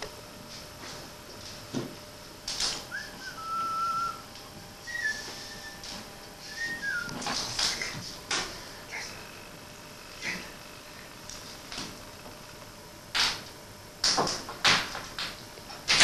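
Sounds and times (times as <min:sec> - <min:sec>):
person whistling: 0:02.9 - 0:04.2, 0:04.8 - 0:05.8, 0:06.4 - 0:07.2.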